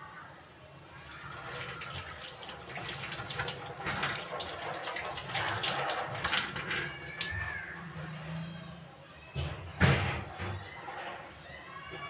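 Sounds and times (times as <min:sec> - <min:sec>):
oil crackling: 0:01.0 - 0:07.4.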